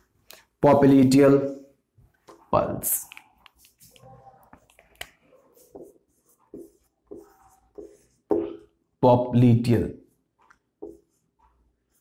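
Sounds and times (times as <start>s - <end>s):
marker squeaking on whiteboard: 2.2s - 8.8s, 10.1s - 12.0s.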